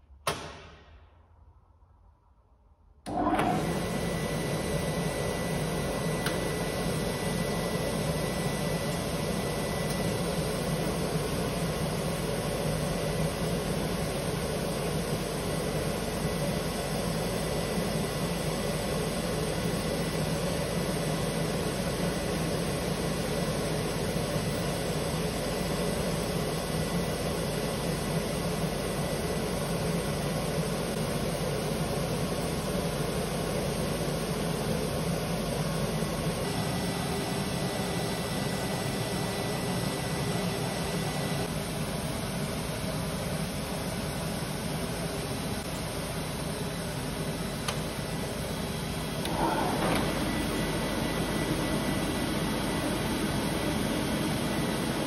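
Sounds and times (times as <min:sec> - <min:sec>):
sanding machine running with whine: 0:03.5 - 0:32.8, 0:33.8 - 0:41.5, 0:48.0 - 0:55.0.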